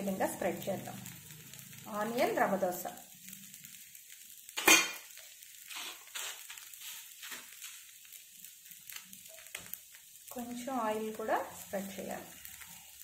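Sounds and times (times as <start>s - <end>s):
dosa sizzling on a pan: 0.0s - 13.0s
spatula scraping a pan: 4.5s - 8.2s.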